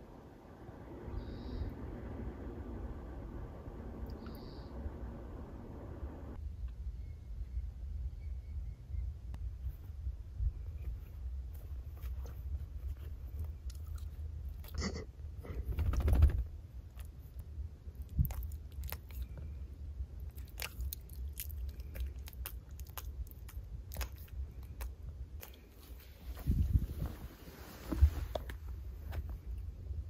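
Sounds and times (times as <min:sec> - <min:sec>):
low steady rumble: 0:00.0 - 0:30.0
rustling: 0:09.5 - 0:14.5, 0:23.5 - 0:29.7
dog licking lips: 0:20.3 - 0:25.8.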